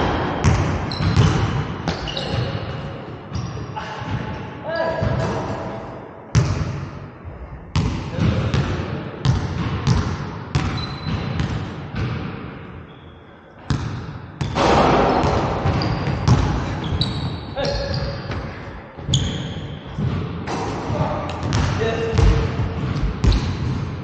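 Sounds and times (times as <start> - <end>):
basketball bouncing on hardwood floor: 0.4 - 2.0, 7.8 - 12.3, 13.7 - 16.7, 21.4 - 23.9
shoe squeaks: 0.9 - 1.3, 1.9 - 2.7, 10.7 - 11.3, 12.9 - 13.3, 15.7 - 18.4, 19.1 - 20.0, 23.2 - 23.6.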